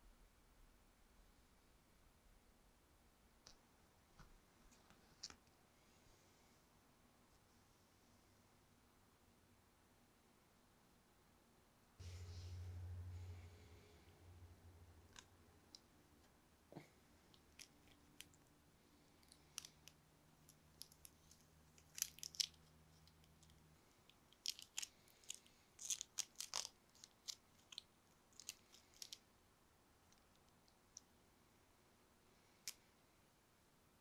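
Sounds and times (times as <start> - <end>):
plastic film crackling: 19.2 - 29.2.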